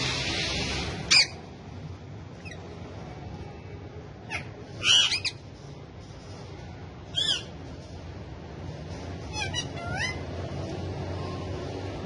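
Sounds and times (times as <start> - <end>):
parrots giving high-pitched calls: 0.8 - 1.5, 2.4 - 2.7, 4.2 - 5.5, 7.1 - 7.6, 9.2 - 10.4.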